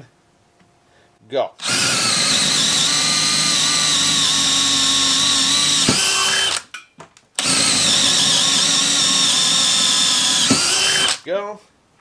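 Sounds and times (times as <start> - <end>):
cordless drill boring into wood: 1.6 - 6.7, 7.4 - 11.2.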